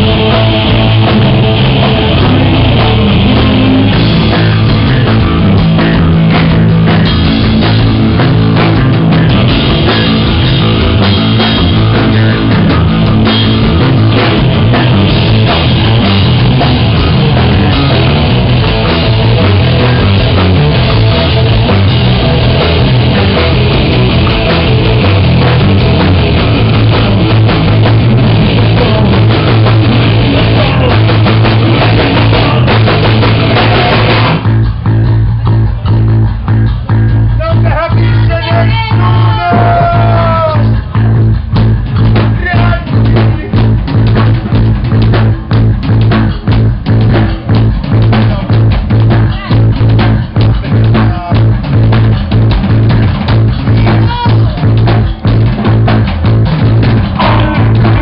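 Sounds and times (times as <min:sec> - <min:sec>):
drum kit: 0:00.0 - 0:58.0
electric guitar: 0:00.0 - 0:58.0
loud live band playing: 0:00.0 - 0:58.0
held low note: 0:57.1 - 0:58.0.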